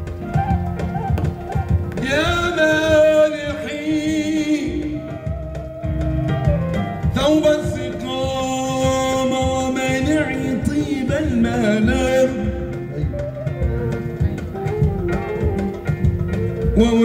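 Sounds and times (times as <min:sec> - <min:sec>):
keyboard: 0:00.0 - 0:17.0
low drum beat: 0:00.0 - 0:17.0
man singing melismatic phrases: 0:02.0 - 0:05.7, 0:07.1 - 0:14.7, 0:16.7 - 0:17.0.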